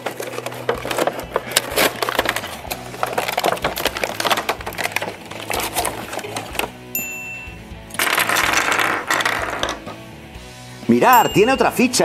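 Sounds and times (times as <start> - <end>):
cardboard tearing: 0.0 - 6.8
plastic packaging crackling: 0.0 - 6.9.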